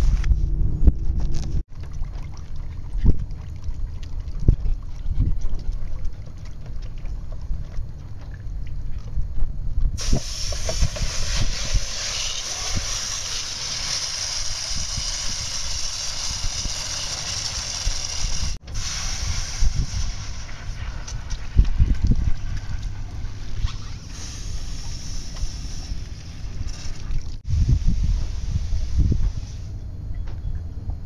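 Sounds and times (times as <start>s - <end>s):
wind buffeting microphone: 2.7s - 7.8s, 17.8s - 23.6s, 27.4s - 31.0s
steady rushing hiss: 10.0s - 21.6s, 22.3s - 29.8s.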